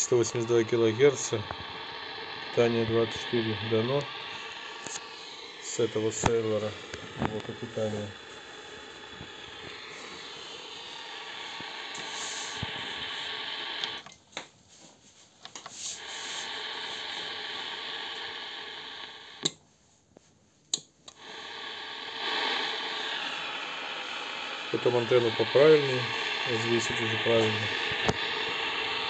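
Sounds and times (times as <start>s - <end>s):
radio static hiss: 0.0s - 14.2s, 15.4s - 19.5s, 21.1s - 29.0s.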